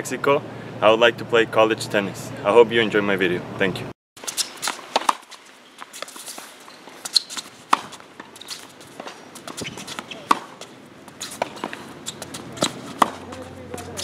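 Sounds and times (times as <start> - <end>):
tennis balls struck by rackets: 4.3 - 14.0
ball bouncing on hard court: 6.0 - 14.0.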